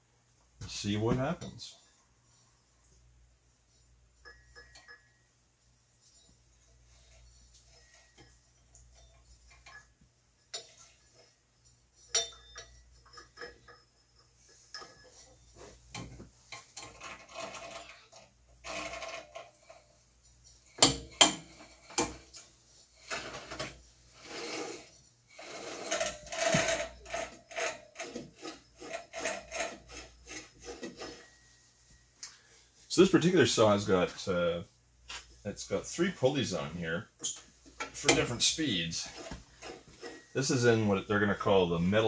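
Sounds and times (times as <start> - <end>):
belt scraping on pulleys: 6.1 - 9.9, 12.1 - 20.0, 21.2 - 33.0, 38.0 - 42.0.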